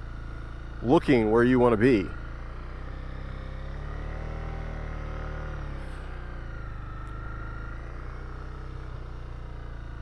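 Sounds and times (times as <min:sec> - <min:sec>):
motorcycle engine at low revs: 0:00.0 - 0:10.0.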